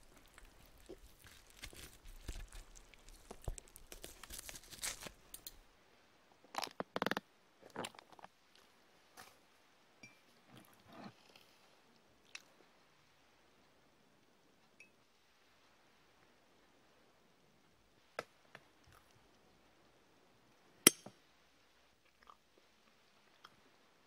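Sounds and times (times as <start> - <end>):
crunching and chewing: 0.0 - 5.6, 22.0 - 23.6.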